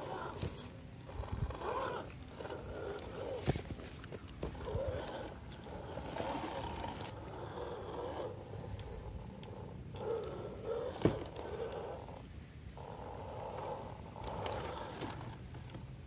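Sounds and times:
rc car electric motor whining: 0:00.0 - 0:03.6, 0:04.4 - 0:16.0.

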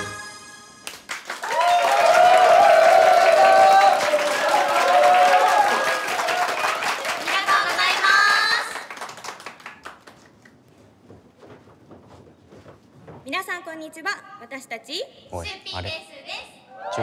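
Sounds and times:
audience clapping: 0:00.8 - 0:10.7.

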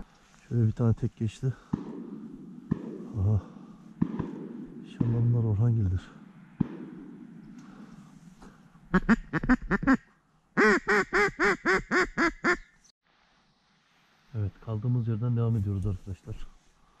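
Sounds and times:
duck call quacks: 0:08.9 - 0:10.0, 0:10.6 - 0:12.7.

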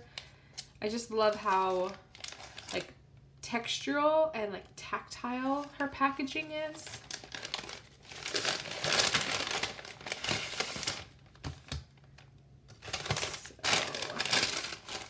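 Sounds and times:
paper rustling and crinkling: 0:01.2 - 0:02.8, 0:05.4 - 0:11.8, 0:12.7 - 0:15.0.

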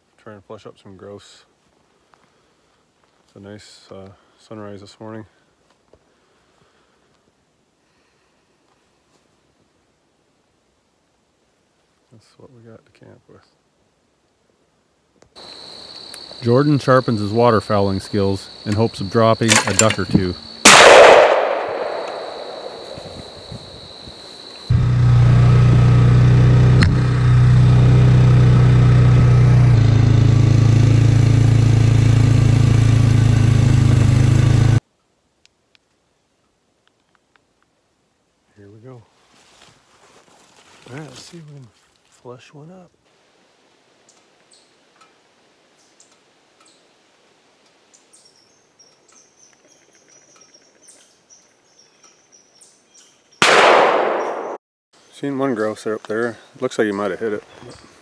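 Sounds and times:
sharp click: 0:19.5 - 0:23.5
loud gunshot: 0:20.6 - 0:23.6, 0:53.4 - 0:54.6
quad engine running: 0:24.7 - 0:34.8
faint bird chirps: 0:47.9 - 0:53.4.

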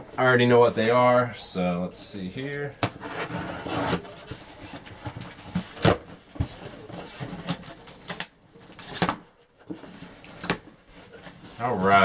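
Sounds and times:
cardboard box rustling and scraping: 0:03.0 - 0:07.8.

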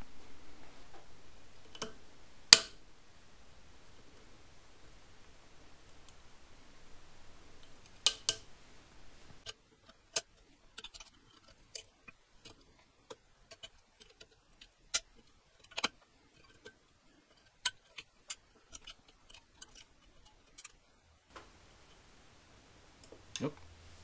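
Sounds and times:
metallic clicks and taps: 0:01.7 - 0:02.8, 0:07.6 - 0:08.5.

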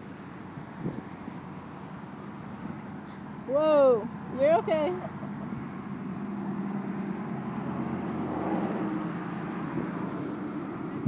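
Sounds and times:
vehicle driving past: 0:04.1 - 0:11.0.

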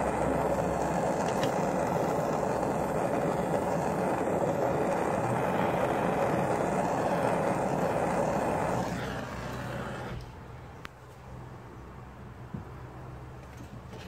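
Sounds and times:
gas torch flame hissing: 0:00.0 - 0:10.5.

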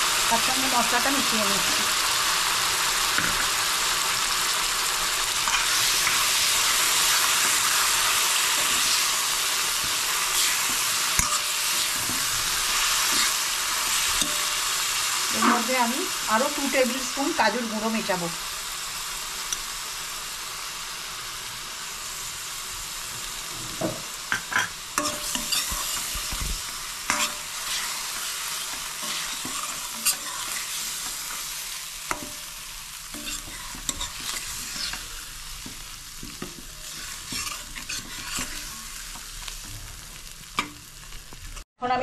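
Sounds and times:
potatoes sizzling in oil: 0:00.0 - 0:41.7
metal spoon scraping a pan: 0:05.4 - 0:14.6, 0:23.6 - 0:26.4, 0:27.0 - 0:39.2.

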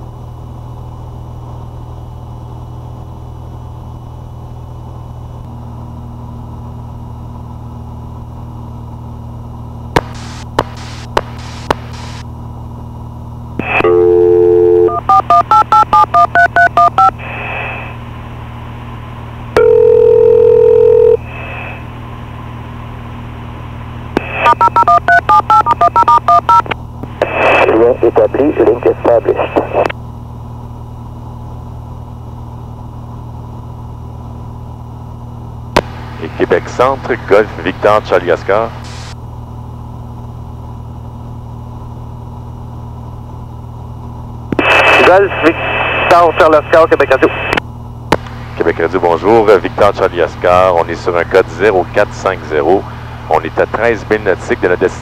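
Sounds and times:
aircraft engine drone: 0:00.0 - 0:55.0
dial tone: 0:13.6 - 0:17.2, 0:19.6 - 0:21.2, 0:24.2 - 0:26.7
touch-tone digits: 0:13.6 - 0:17.2, 0:19.6 - 0:21.2, 0:24.2 - 0:26.8
long steady tone: 0:13.6 - 0:22.0, 0:23.2 - 0:30.0, 0:41.7 - 0:48.6.

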